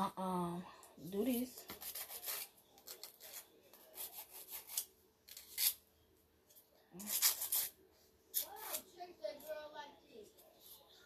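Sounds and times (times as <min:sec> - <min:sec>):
nail file rasping: 0:07.0 - 0:07.7.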